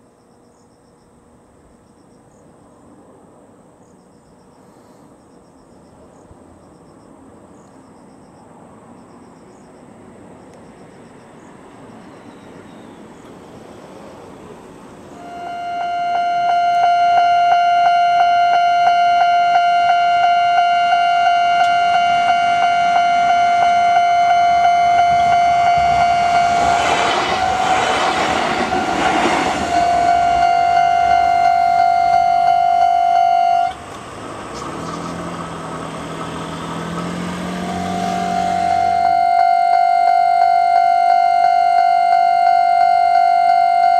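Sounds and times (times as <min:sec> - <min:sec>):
level crossing warning bell: 0:15.2 - 0:33.8, 0:37.7 - 0:43.9
train wheels on rails: 0:25.0 - 0:31.2.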